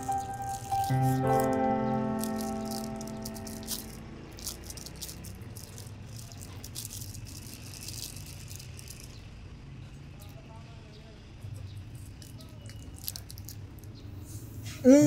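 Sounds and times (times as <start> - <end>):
plastic bag crinkling: 0.0 - 9.2, 12.0 - 14.0.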